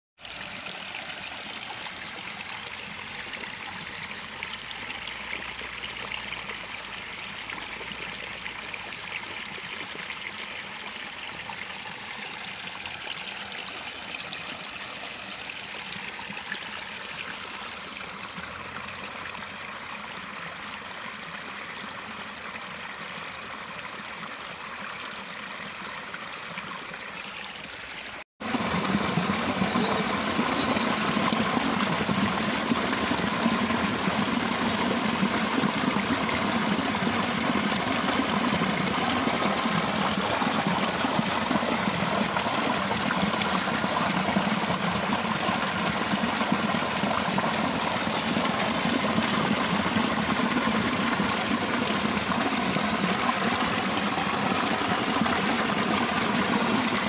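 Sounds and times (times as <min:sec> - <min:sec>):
stream running over rock: 0:00.2 - 0:57.0
water tumbling over cascade: 0:28.4 - 0:57.0.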